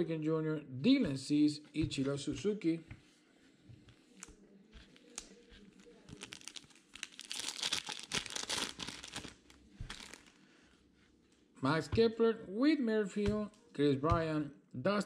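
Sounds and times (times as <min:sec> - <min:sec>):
foil wrapper crinkling and tearing: 0:04.9 - 0:10.4.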